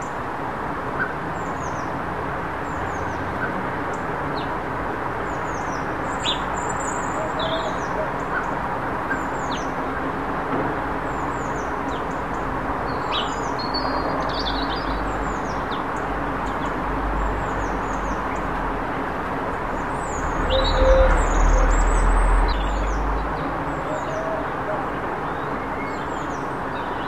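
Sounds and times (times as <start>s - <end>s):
small birds chirping: 11.1s - 18.5s.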